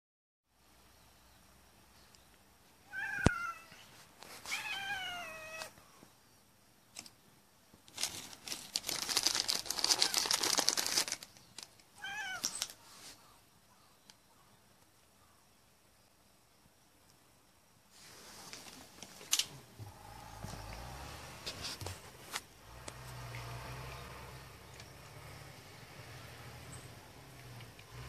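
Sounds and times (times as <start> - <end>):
cat meowing: 2.9 - 3.8, 4.4 - 5.8, 12.0 - 12.6
crackling noise: 6.9 - 13.2.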